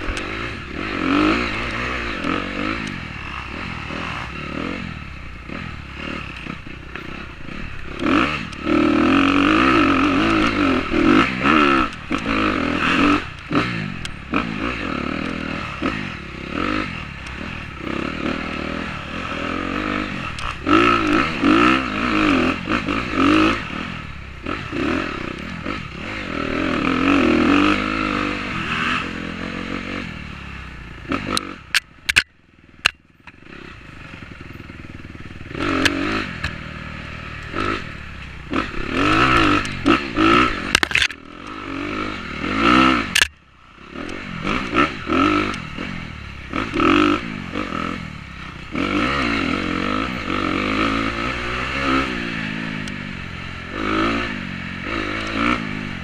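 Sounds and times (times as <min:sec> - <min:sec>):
dirt bike engine revving: 0:00.0 - 0:56.0
sharp clacks: 0:31.2 - 0:33.4, 0:39.3 - 0:41.6, 0:43.0 - 0:43.4.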